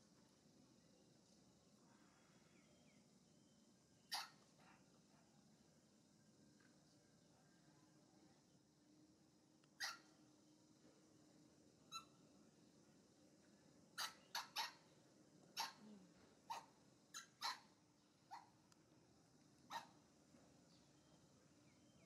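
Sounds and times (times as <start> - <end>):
baby monkey squeaking cries: 4.1 - 4.3, 14.0 - 14.8.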